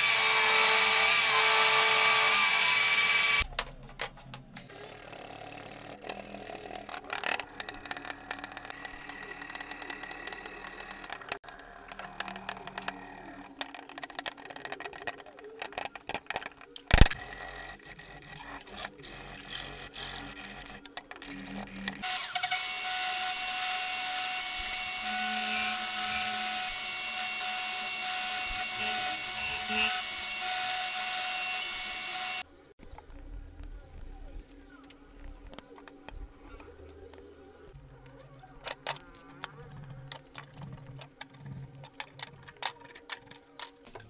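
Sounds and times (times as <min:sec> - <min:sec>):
angle grinder sanding wood: 0:00.0 - 0:03.4, 0:22.0 - 0:32.4.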